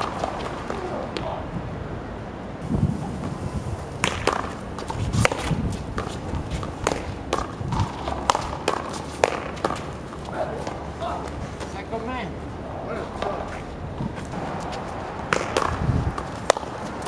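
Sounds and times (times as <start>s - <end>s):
paddles smacking ball: 4.0s - 10.0s, 14.3s - 17.0s
ball hitting concrete wall: 4.0s - 11.2s, 14.3s - 17.0s
sneakers scuffing on concrete: 4.1s - 12.0s.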